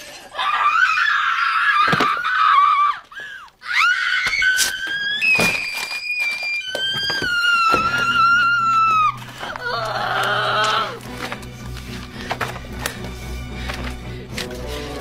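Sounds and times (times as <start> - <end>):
high-pitched voice shrieking: 3.6 - 11.0.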